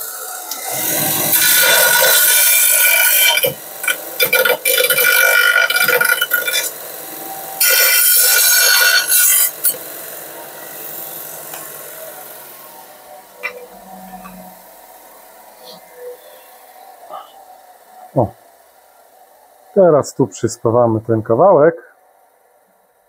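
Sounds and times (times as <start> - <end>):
power grinder grinding steel: 0.0 - 18.3
motor hum: 0.0 - 23.0.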